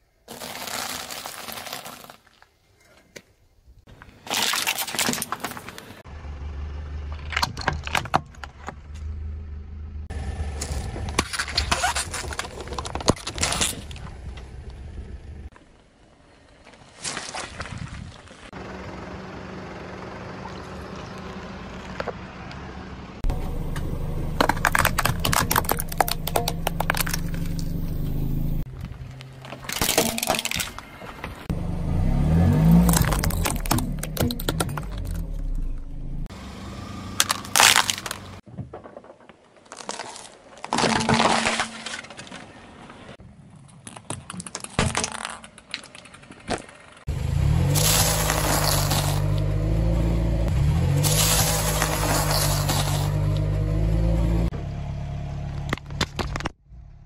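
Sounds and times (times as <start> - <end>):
plastic bottles crushed by tyre: 0.2 - 2.6, 4.2 - 5.9, 10.6 - 14.1, 23.2 - 27.8, 29.4 - 31.3, 32.6 - 35.4, 37.2 - 42.6, 43.8 - 46.8, 47.6 - 49.5, 50.8 - 53.4
low engine hum: 6.1 - 11.2, 18.6 - 29.4, 30.9 - 38.4, 46.8 - 57.0.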